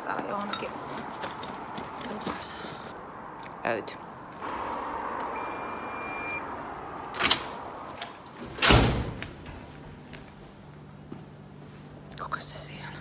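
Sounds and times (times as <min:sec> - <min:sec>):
card reader electronic tone: 0:05.4 - 0:06.4
door thumping shut: 0:08.5 - 0:09.4.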